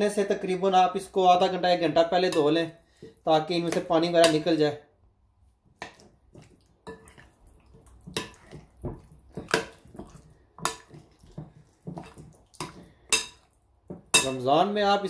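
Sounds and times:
spoon stirring wet marinade: 0.1 - 4.6, 5.4 - 15.0
spoon tapping glass bowl: 12.6 - 14.4.

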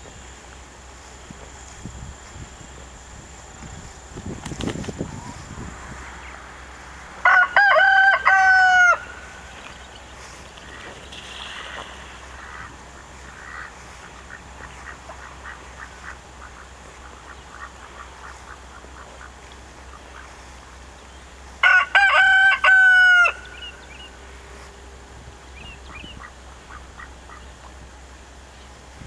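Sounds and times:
rooster crowing: 7.2 - 9.5, 21.6 - 24.0.

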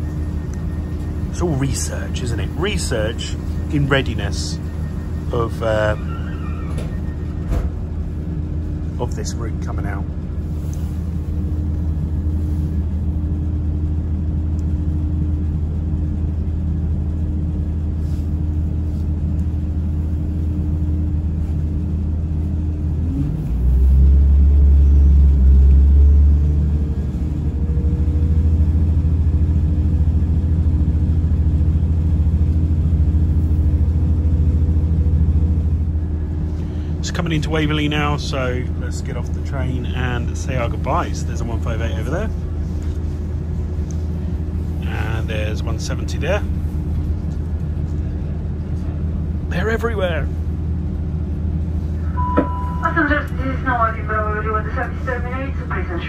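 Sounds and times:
train wheels on rails: 0.0 - 8.9
train diesel engine rumble: 0.0 - 56.0.

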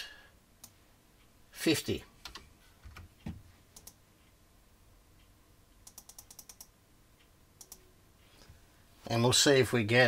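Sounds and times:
keyboard and mouse clicks: 2.2 - 4.0, 5.8 - 6.8, 7.6 - 7.9.

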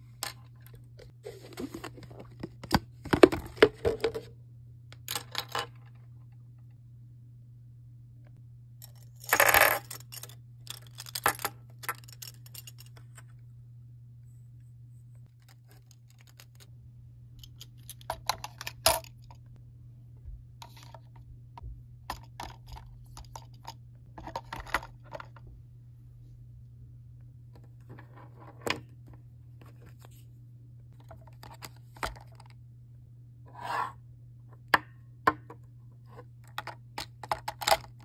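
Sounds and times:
makeup brushes rattling in case: 9.6 - 13.1.

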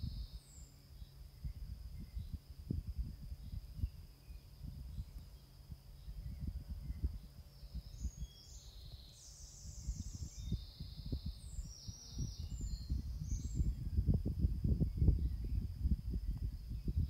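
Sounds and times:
bird chirping: 0.0 - 2.4, 3.0 - 14.1
wind buffeting microphone: 1.3 - 17.0.

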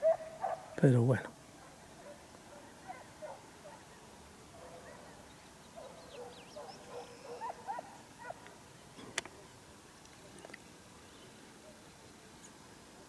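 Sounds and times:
distant hounds baying and yelping: 0.0 - 0.8, 1.5 - 8.6.

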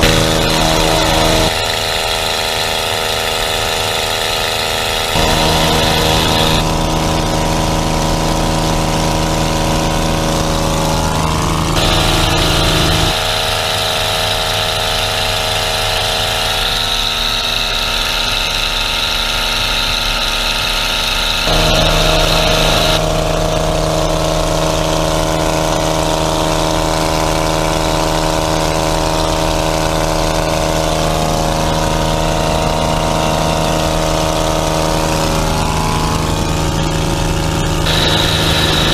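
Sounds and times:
light aircraft engine in flight: 0.0 - 38.9.

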